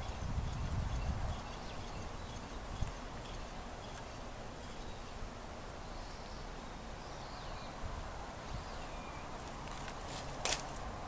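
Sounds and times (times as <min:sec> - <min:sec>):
steady background hiss: 0:00.0 - 0:11.0
faint bird chirps: 0:08.5 - 0:09.4.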